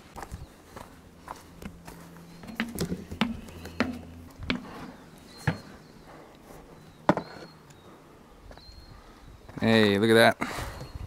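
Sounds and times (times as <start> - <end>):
footsteps on wooden boards: 0.2 - 5.8.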